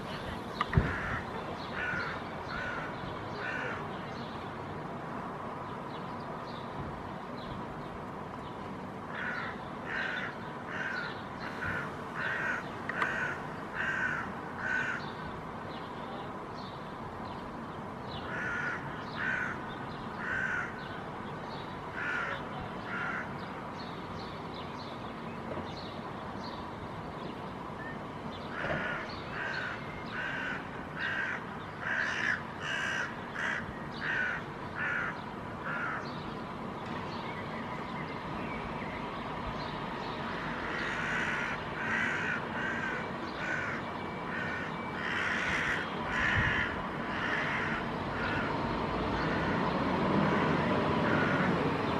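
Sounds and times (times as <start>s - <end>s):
crows cawing: 0.8s - 3.8s, 9.1s - 15.1s, 18.3s - 19.6s, 20.2s - 20.8s, 21.9s - 23.3s, 28.5s - 36.1s, 40.4s - 48.6s, 49.2s - 49.6s, 50.3s - 51.6s.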